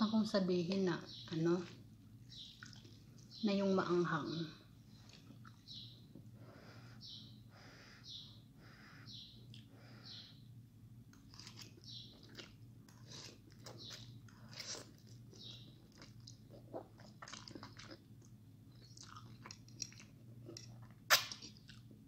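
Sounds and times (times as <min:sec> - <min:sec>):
steady low hum: 0:00.0 - 0:22.0
wet chewing: 0:01.7 - 0:03.4, 0:11.1 - 0:22.0.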